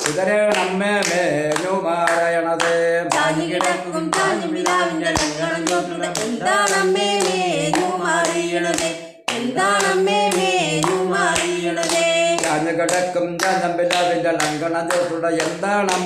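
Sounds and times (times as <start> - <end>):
hand claps: 0.0 - 16.0
woman singing folk song: 3.2 - 12.4.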